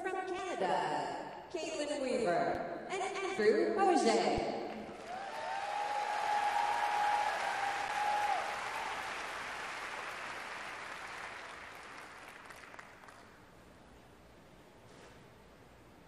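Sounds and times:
audience applauding: 4.8s - 13.4s
high cheer: 4.9s - 11.9s.

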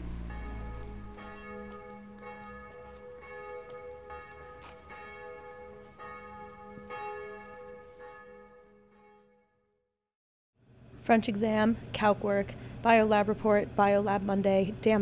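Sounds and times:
bells ringing: 0.0s - 9.3s.

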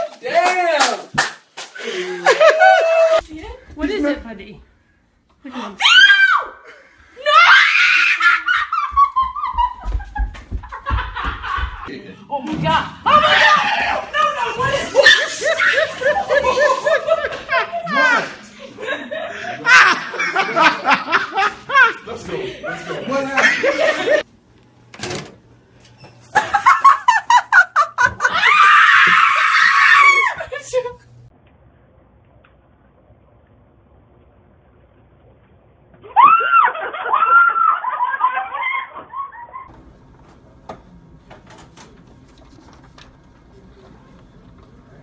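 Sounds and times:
person laughing hard: 14.6s - 18.1s.

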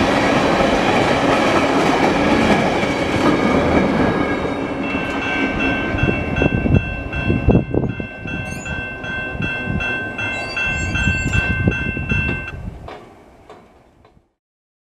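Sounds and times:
freight train rumble: 0.0s - 14.4s
railway crossing bell ringing: 3.4s - 12.7s.

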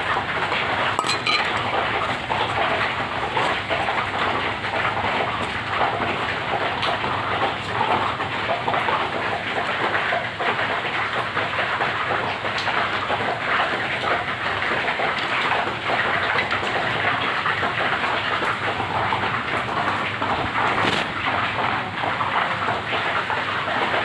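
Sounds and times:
heavy rain falling: 0.0s - 24.0s
metal pan clink: 1.0s - 1.8s.

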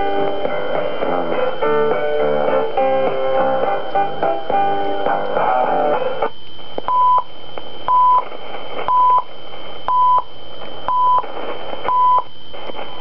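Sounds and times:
time signal beeps: 6.3s - 7.3s, 7.9s - 8.2s, 8.9s - 9.3s, 9.9s - 10.3s, 10.9s - 11.2s, 11.9s - 12.4s.

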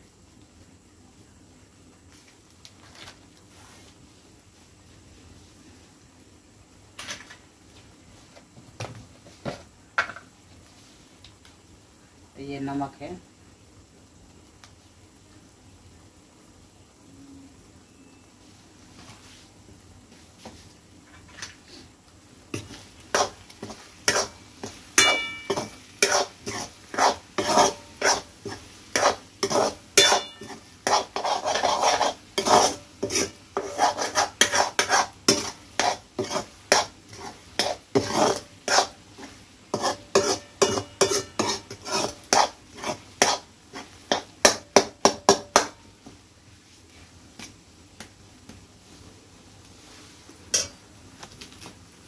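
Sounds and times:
metal spoon stirring in pan: 22.5s - 45.8s, 50.5s - 50.8s
pan ringing: 25.0s - 25.7s, 30.0s - 30.6s.

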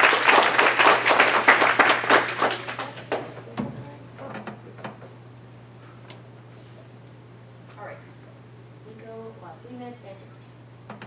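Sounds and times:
audience applauding: 0.0s - 3.4s.

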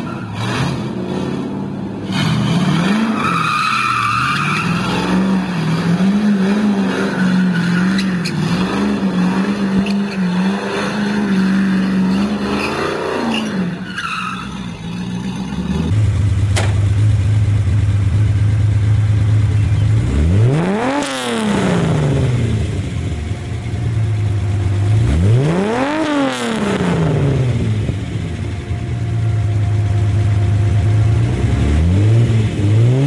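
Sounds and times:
engine revving high: 0.0s - 15.9s, 20.0s - 22.7s, 25.0s - 27.8s, 31.2s - 33.0s
tyres squealing and skidding: 0.0s - 15.9s
car engine running steadily: 0.0s - 33.0s.

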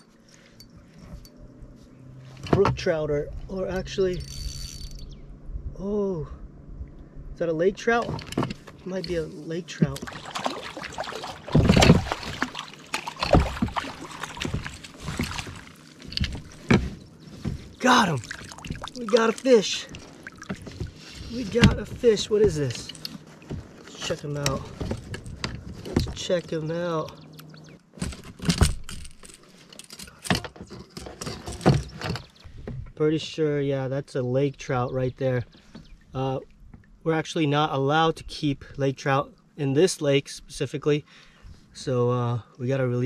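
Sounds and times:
fish thrashing and splashing: 10.0s - 23.8s
knocks against boat: 19.9s - 22.8s.

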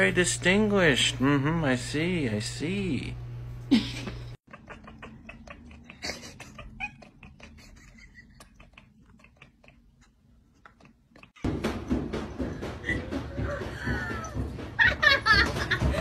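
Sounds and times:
cat chattering: 4.5s - 11.4s.

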